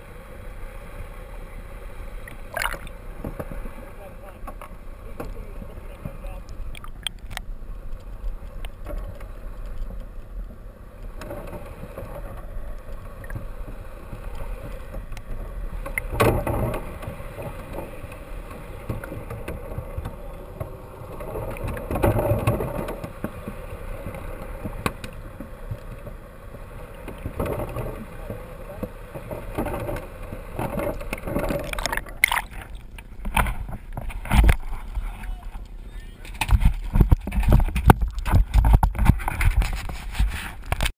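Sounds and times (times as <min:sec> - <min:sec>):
muffled underwater water rushing: 0:00.0 - 0:40.9.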